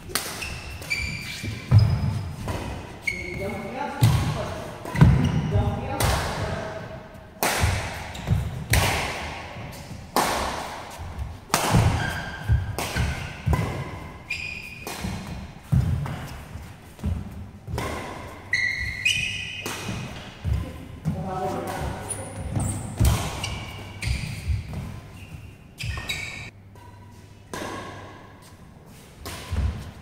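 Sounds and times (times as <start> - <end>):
court shoes squeaking: 0.0 - 5.8, 7.6 - 8.9, 10.9 - 27.2
rackets striking shuttlecock: 7.4 - 9.4, 11.5 - 16.2, 17.0 - 20.6.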